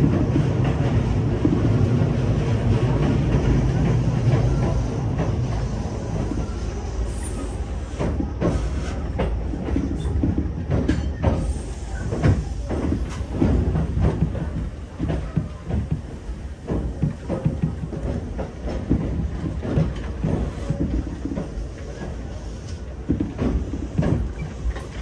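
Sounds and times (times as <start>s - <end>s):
train wheels rumbling on rail: 0.0s - 25.0s
wheel clacks over rail joints: 8.0s - 25.0s.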